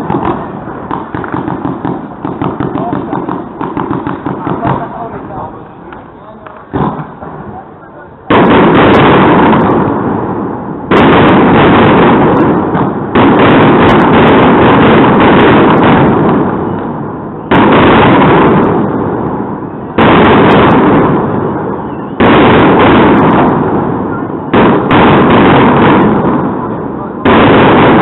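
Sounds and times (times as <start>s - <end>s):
firework shells bursting: 0.0s - 7.6s, 8.3s - 28.0s.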